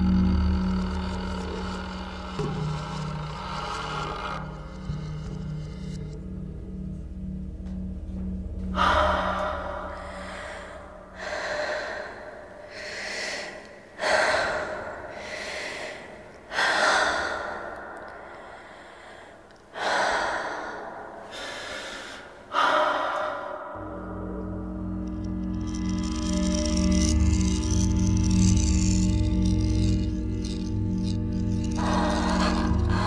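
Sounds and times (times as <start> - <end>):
person gasping for breath: 8.8 - 23.8.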